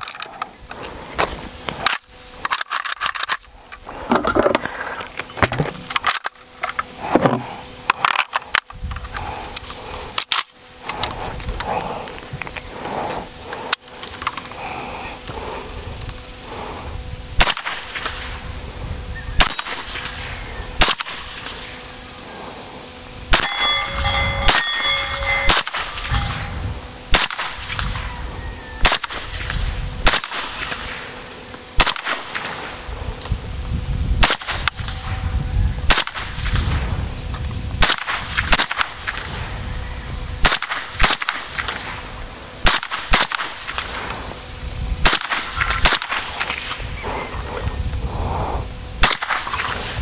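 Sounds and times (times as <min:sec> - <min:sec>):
sharp handling clicks: 0:01.2 - 0:07.0
wind rumbling on microphone: 0:08.7 - 0:10.2, 0:10.8 - 0:13.8, 0:14.6 - 0:21.7, 0:23.1 - 0:30.8, 0:32.8 - 0:40.5, 0:43.7 - 0:50.0
suppressed rifle shots: 0:17.4 - 0:18.2, 0:20.8 - 0:21.5, 0:30.0 - 0:30.8, 0:31.8 - 0:32.5, 0:40.4 - 0:41.8, 0:42.6 - 0:44.0, 0:45.0 - 0:46.7, 0:49.0 - 0:49.8
thin metallic ringing: 0:23.4 - 0:26.8.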